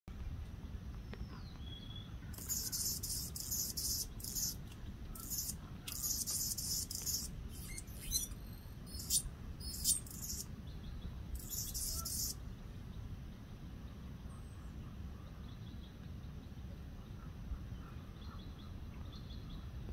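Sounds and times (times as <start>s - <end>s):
low steady rumble: 0.1s - 19.9s
hummingbird singing: 1.4s - 12.4s.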